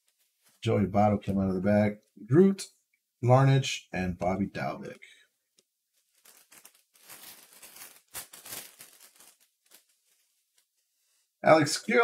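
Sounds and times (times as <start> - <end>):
foil wrapper crinkling and tearing: 6.0 - 10.7.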